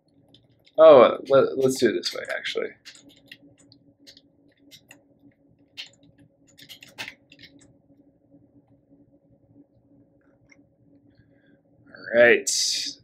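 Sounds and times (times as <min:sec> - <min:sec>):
keyboard typing: 0:00.0 - 0:07.8
faint steady hum: 0:00.0 - 0:13.0.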